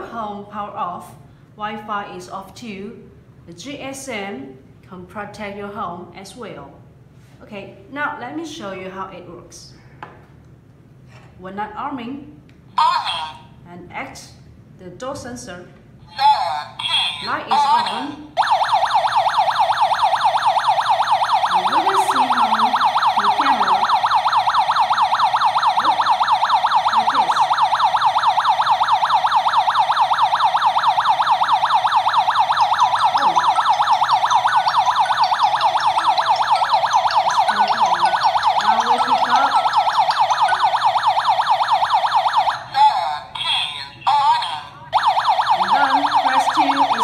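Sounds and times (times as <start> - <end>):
alarm siren electronic warble: 18.4 - 43.0, 44.9 - 47.0.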